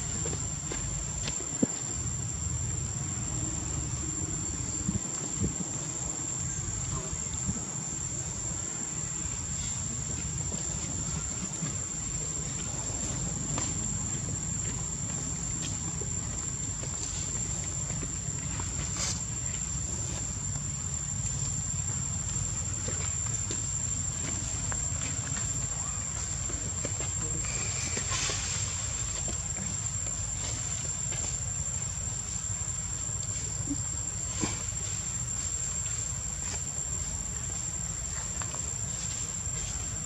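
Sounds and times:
insects chirring: 0.0 - 40.0.

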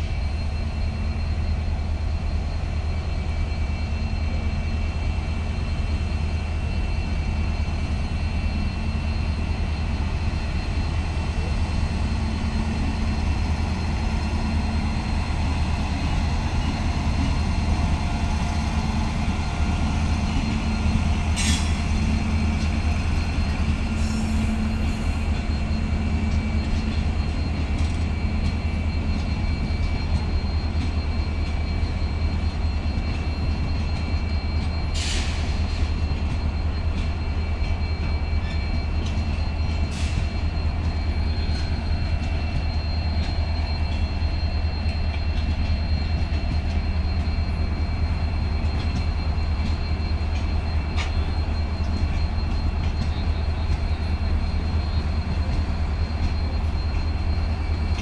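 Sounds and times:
faint high squeal: 0.0 - 58.0
train wheels rumbling on track: 0.0 - 58.0.

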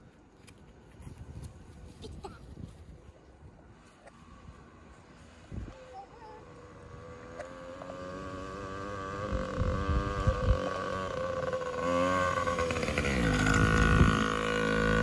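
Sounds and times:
dirt bike engine revving: 6.6 - 15.0.

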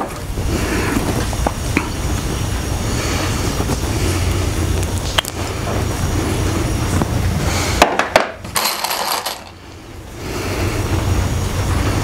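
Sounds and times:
steady low rumble: 0.0 - 7.8.

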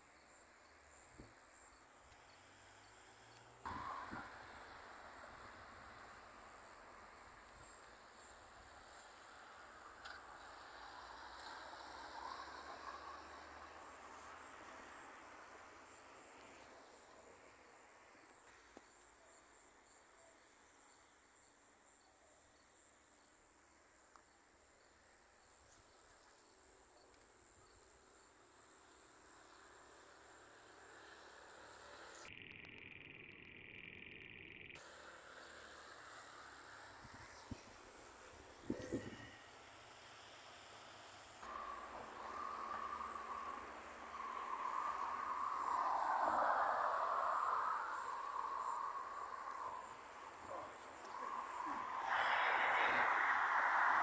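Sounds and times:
crickets trilling: 0.0 - 54.0.

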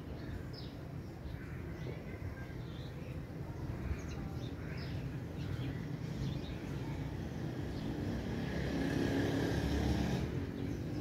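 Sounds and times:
vehicle engine passing by: 7.2 - 11.0.

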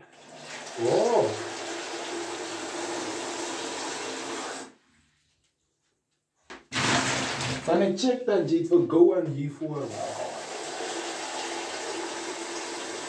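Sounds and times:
tap water running into sink: 0.0 - 4.7, 9.8 - 13.0.

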